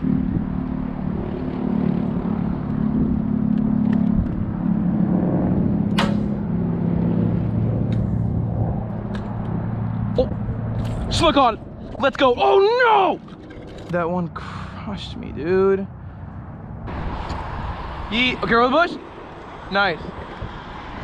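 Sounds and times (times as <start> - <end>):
sharp click: 5.9 - 6.4.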